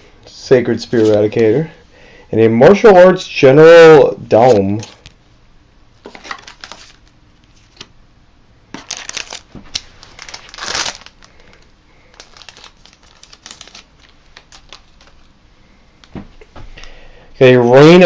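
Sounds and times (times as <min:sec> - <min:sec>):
foil wrapper crinkling: 0:06.0 - 0:07.9, 0:08.7 - 0:15.3.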